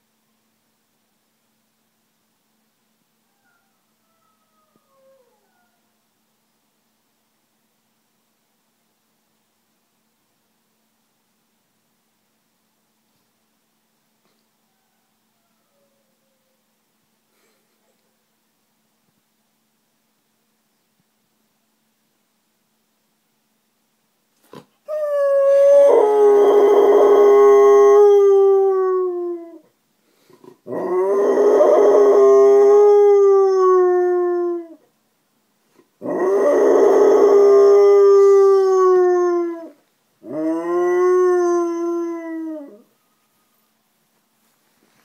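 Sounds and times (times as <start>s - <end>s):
dog howling: 24.9s - 29.7s, 30.6s - 34.8s, 36.0s - 43.0s.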